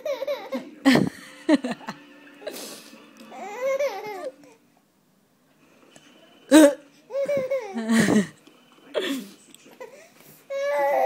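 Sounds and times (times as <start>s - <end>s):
baby laughing and babbling: 0.0s - 0.7s, 3.3s - 4.6s, 6.6s - 8.1s, 9.8s - 11.0s
baby cooing: 3.3s - 4.6s, 9.8s - 11.0s.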